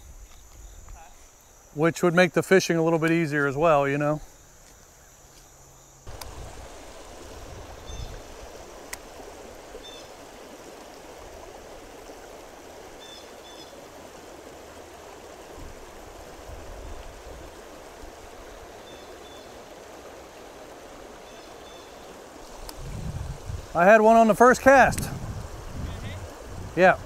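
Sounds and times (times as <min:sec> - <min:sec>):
stream water rushing over rocks: 0:06.1 - 0:27.0.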